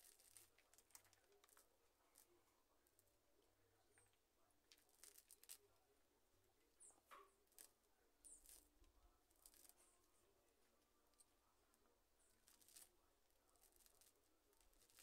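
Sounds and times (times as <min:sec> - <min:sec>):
hands rustling potting soil: 0:00.0 - 0:02.4.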